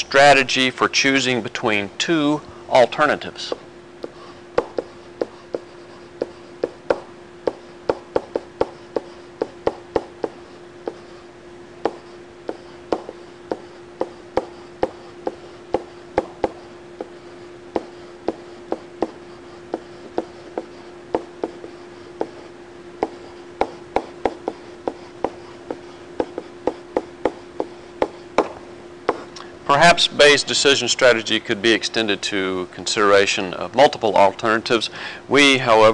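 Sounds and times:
steady hum: 0:00.0 - 0:35.9
stylus tapping on pen tablet: 0:04.0 - 0:11.0, 0:11.8 - 0:17.1, 0:17.7 - 0:22.4, 0:23.0 - 0:29.2.

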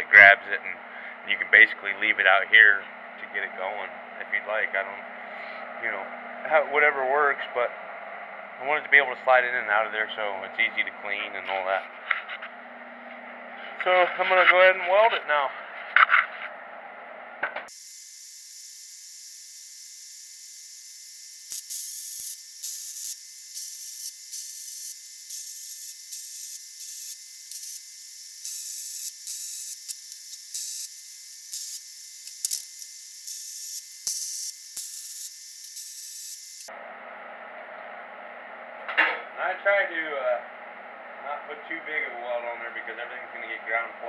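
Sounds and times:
welder arc sizzling: 0:00.9 - 0:16.4, 0:17.7 - 0:36.7.

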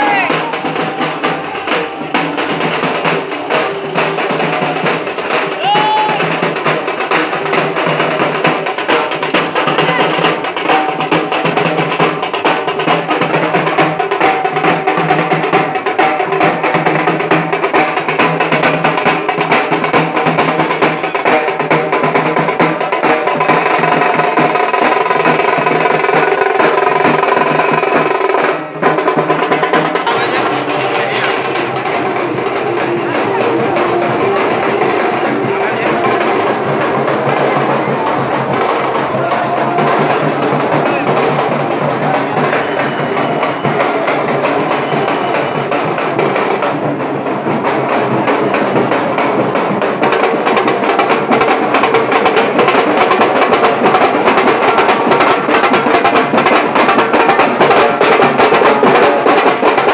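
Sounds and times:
rapid continuous drumming: 0:00.0 - 0:59.9.

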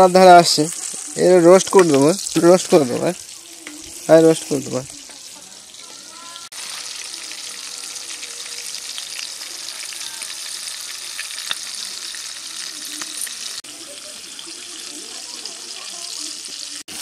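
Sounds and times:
chicken deep-frying in oil: 0:00.0 - 0:17.0
oil popping: 0:10.3 - 0:13.6.

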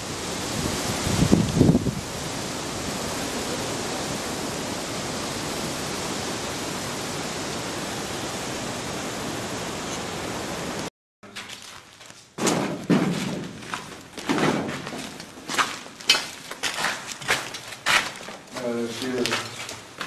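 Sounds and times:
heavy rain: 0:00.0 - 0:10.9
wind: 0:00.0 - 0:20.0
loud thumps: 0:12.4 - 0:15.2.

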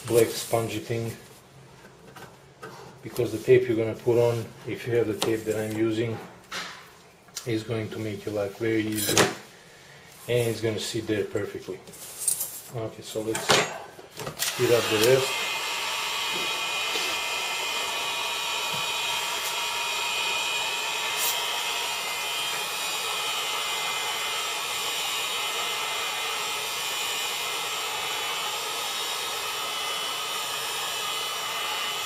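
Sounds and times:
heat gun blowing: 0:14.4 - 0:32.0.

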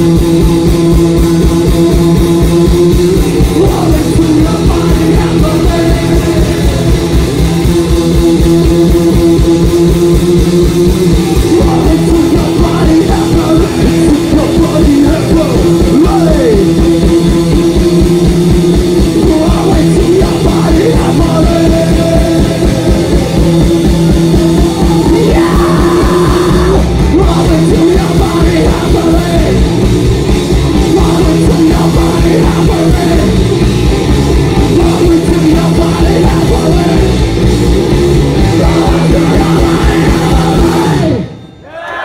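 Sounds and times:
fast drumming: 0:00.0 - 0:41.3
rock band playing live: 0:00.0 - 0:41.6.

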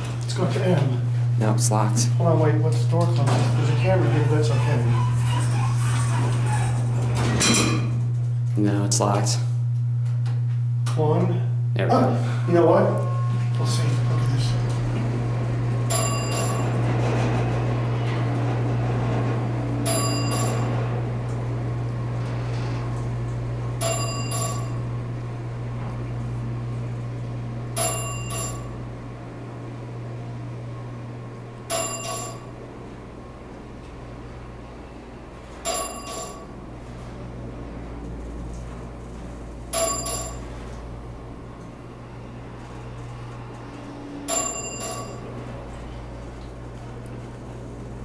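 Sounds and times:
low hum of elevator car: 0:00.0 - 0:48.0
elevator floor chime ding: 0:12.4 - 0:13.4, 0:15.8 - 0:17.0, 0:19.8 - 0:20.9, 0:23.8 - 0:24.9, 0:27.7 - 0:28.8, 0:31.6 - 0:32.6, 0:35.6 - 0:36.5, 0:39.7 - 0:40.7, 0:44.2 - 0:45.4.

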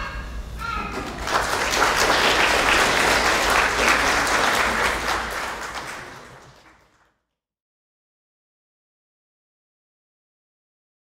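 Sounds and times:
audience applauding: 0:00.9 - 0:07.1.

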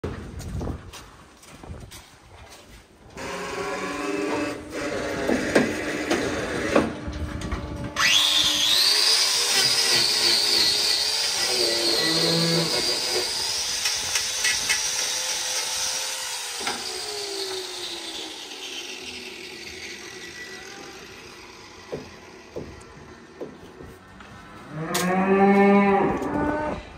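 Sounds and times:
grinder whining: 0:03.1 - 0:25.0.

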